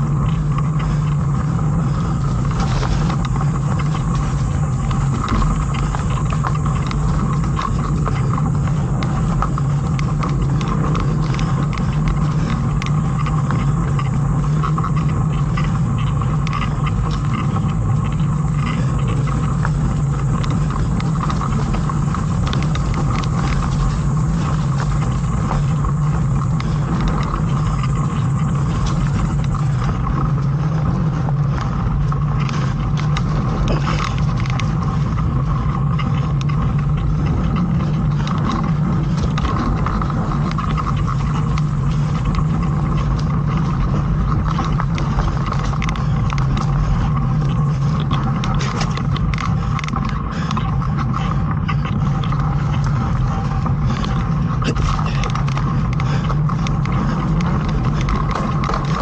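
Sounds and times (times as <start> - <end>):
bike rattles and clicks: 0.0 - 59.0
tyre and wind rumble: 0.0 - 59.0.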